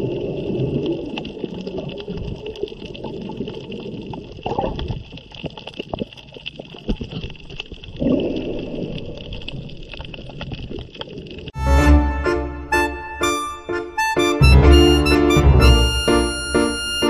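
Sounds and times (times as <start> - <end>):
muffled underwater noise with crackles: 0.0 - 11.6.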